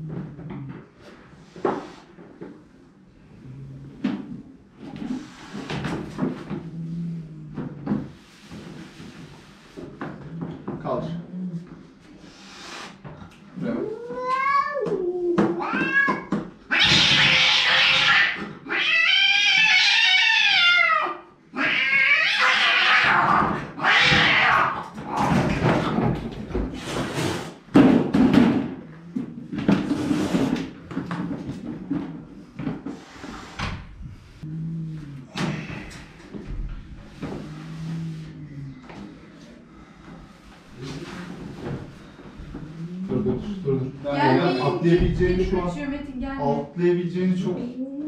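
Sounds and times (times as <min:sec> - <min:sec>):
cat hissing and spitting: 0:12.2 - 0:13.1, 0:26.8 - 0:27.6
cat yowling: 0:13.7 - 0:24.9.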